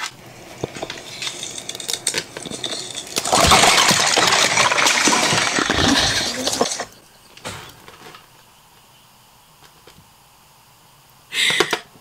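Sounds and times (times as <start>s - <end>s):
ice crackling: 0.0s - 8.0s
ice clinking: 0.1s - 7.0s.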